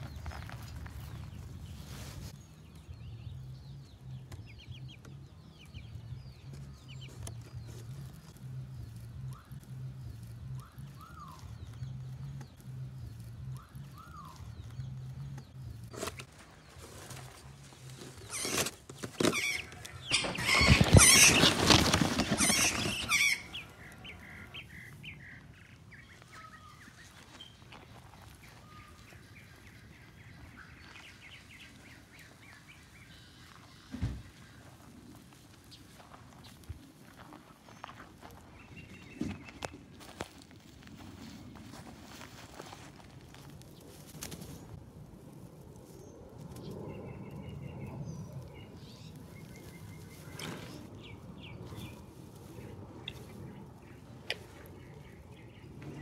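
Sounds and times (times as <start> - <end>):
birds chirping: 0.0 - 56.0
cardboard scraping and rustling: 15.9 - 23.4.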